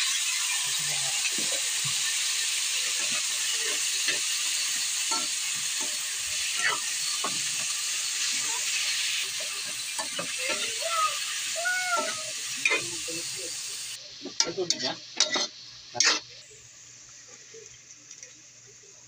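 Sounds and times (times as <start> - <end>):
squash sizzling in hot oil: 0.0 - 19.0
metal spatula scraping pan: 3.0 - 8.4, 14.4 - 16.3.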